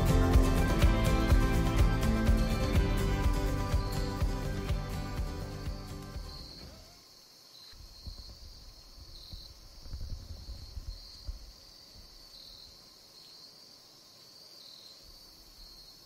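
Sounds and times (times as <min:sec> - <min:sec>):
insects chirping: 0:00.0 - 0:16.0.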